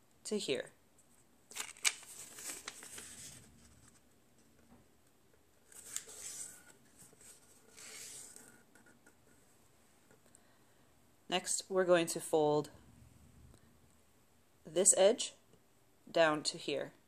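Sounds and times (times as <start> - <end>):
paper rustling as it is folded: 1.5 - 4.6, 5.6 - 9.4.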